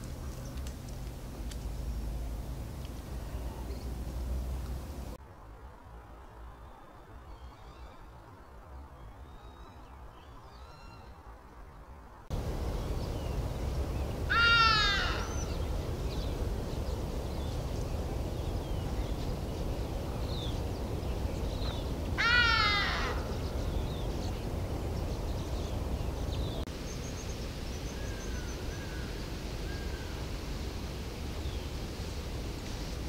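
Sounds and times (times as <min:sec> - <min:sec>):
steady low rumble: 0:12.3 - 0:33.0
large bird calling: 0:12.7 - 0:19.2, 0:20.2 - 0:24.6.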